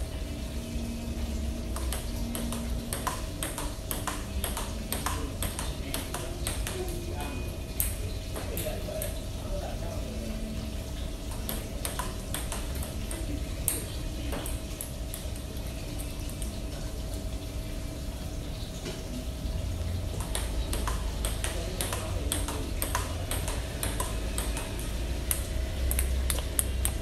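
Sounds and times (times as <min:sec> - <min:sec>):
table tennis ball hitting paddles: 0:01.7 - 0:07.0, 0:11.3 - 0:15.2, 0:20.1 - 0:27.0
ball bouncing on table: 0:01.8 - 0:06.9, 0:11.3 - 0:14.6, 0:20.1 - 0:25.4.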